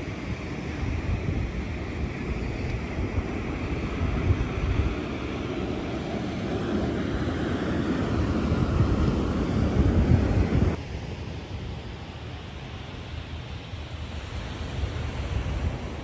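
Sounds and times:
wind buffeting microphone: 0.0 - 10.8
ocean surf: 0.0 - 16.0.

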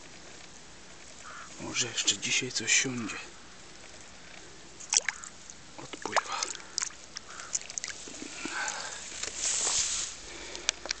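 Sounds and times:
rustle through tall grass: 2.7 - 11.0.

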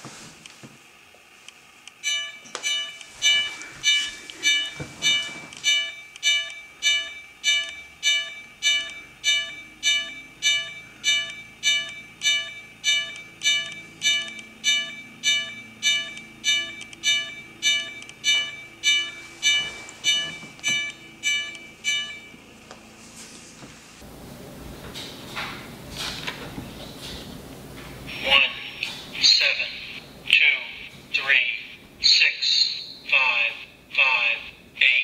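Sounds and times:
crossing bell through small speaker: 2.0 - 22.4.

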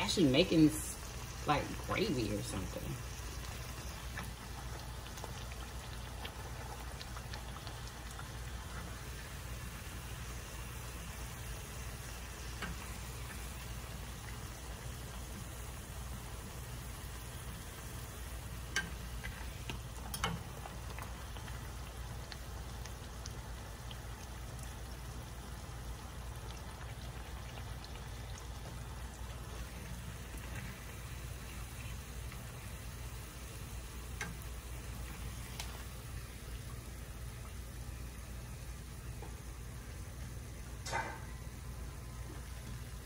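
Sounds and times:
tortilla sizzling in oil: 0.0 - 43.0.

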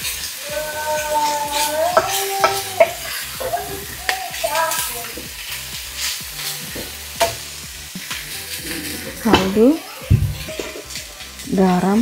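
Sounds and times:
food sizzling in a frying pan: 0.0 - 12.0
spatula scraping and knocking pan: 1.5 - 5.4, 6.0 - 11.0.

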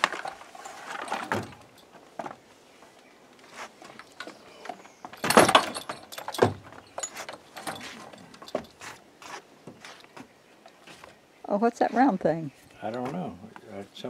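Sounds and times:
metal fittings clinking: 5.2 - 9.0
leather rustling: 5.2 - 11.1.

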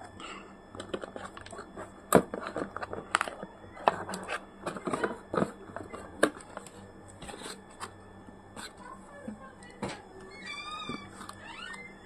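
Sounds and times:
cardboard scraping: 0.9 - 8.8.

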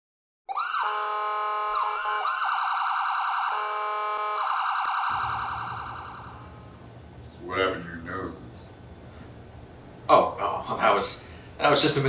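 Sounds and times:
emergency vehicle sirens wailing: 0.5 - 6.8
low rumble of room noise: 5.1 - 12.0.

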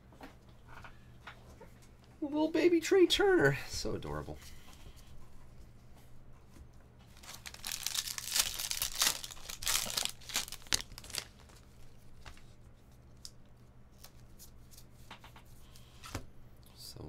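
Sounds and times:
foil wrapper tearing and crinkling: 7.1 - 12.3.

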